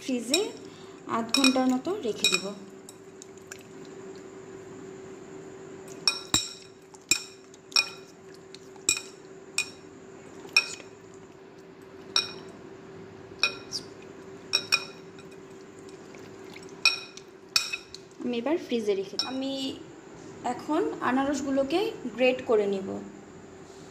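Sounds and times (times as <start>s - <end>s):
steady hum: 0.0s - 23.9s
clinks against glass bowl: 0.3s - 0.6s, 1.3s - 3.1s, 5.9s - 8.1s, 8.8s - 9.8s, 10.5s - 10.9s, 12.1s - 12.5s, 13.4s - 13.9s, 14.5s - 15.4s, 16.8s - 18.0s, 19.2s - 19.4s.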